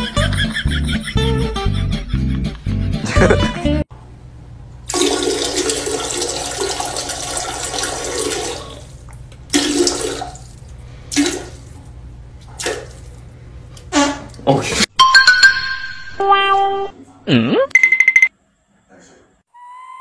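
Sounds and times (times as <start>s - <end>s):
dog urinating into toilet water: 4.9s - 11.8s, 12.4s - 13.2s.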